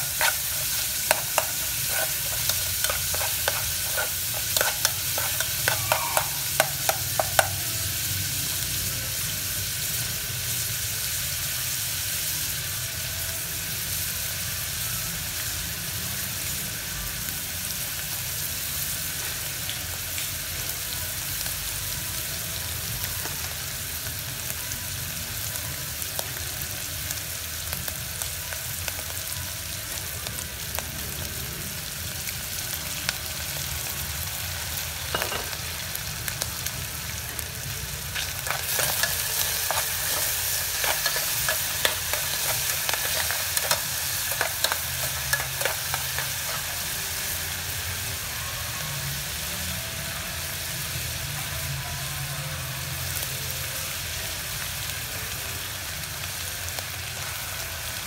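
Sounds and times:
spoon scraping metal pot: 0.0s - 7.5s
meat sizzling in oil: 0.0s - 58.0s.

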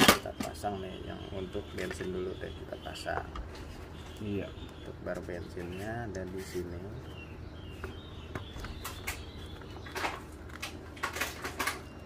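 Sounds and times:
clicks and rustles of handling: 7.8s - 12.0s.

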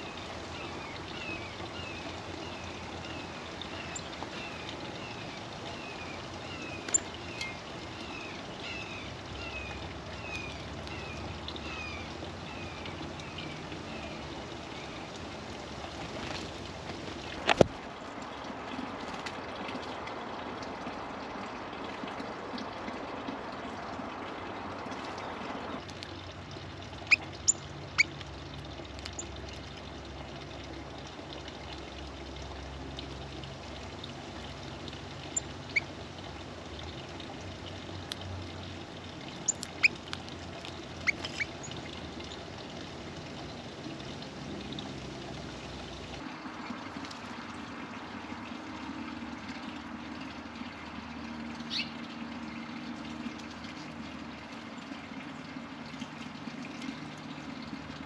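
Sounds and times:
small birds chirping: 0.0s - 15.1s, 39.3s - 41.9s, 51.6s - 52.7s
outdoor background noise: 0.0s - 58.0s.

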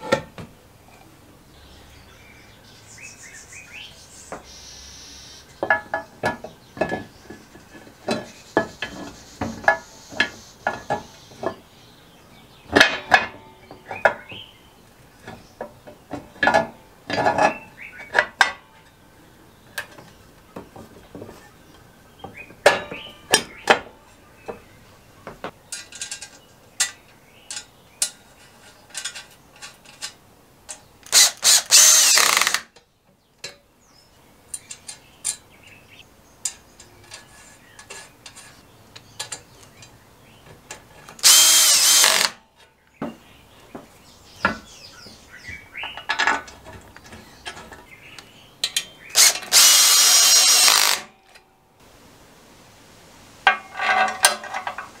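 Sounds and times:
metal clinks and knocks: 53.5s - 55.0s.

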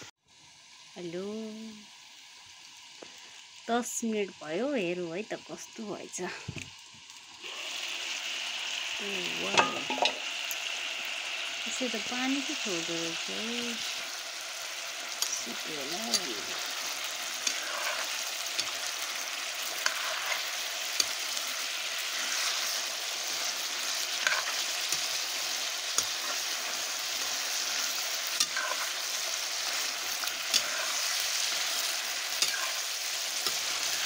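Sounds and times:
meat sizzling in a pan: 0.0s - 34.0s
ladle stirring: 22.1s - 31.4s.

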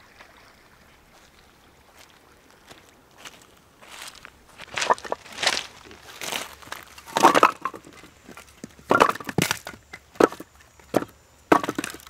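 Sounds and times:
footsteps crunching on beach: 0.9s - 8.7s.

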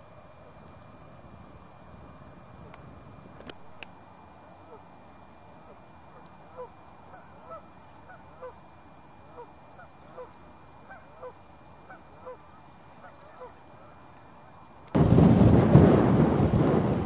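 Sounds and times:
faint geese honking: 4.3s - 14.8s.

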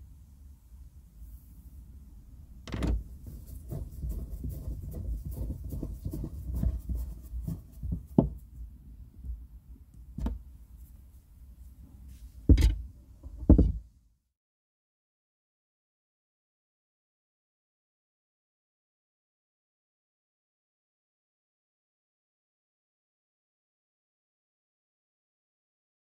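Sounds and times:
tool knocking on plastic trim: 7.5s - 8.4s, 12.5s - 13.8s.

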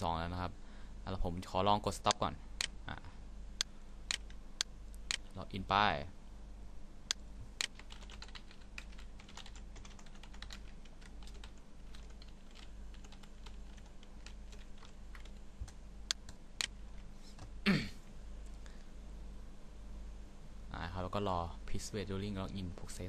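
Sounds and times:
computer keyboard typing: 4.1s - 4.4s, 7.6s - 16.8s.

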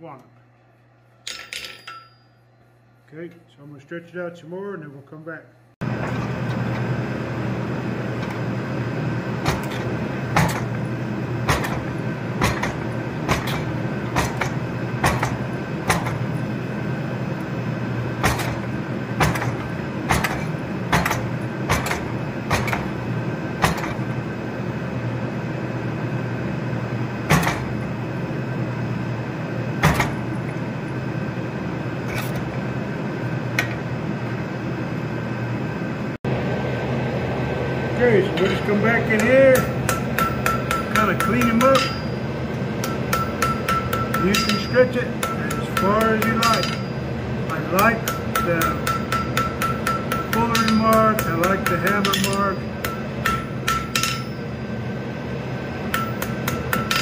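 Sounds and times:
steady machine hum: 0.0s - 57.0s
press striking hot steel: 9.3s - 24.2s, 27.2s - 27.9s, 29.8s - 30.7s, 38.4s - 54.6s, 55.9s - 57.0s.

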